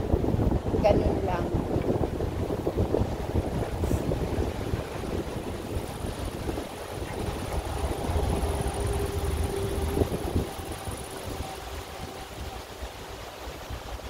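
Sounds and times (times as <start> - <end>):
thin steady whine: 0.0 - 14.0
wind buffeting microphone: 0.0 - 14.0.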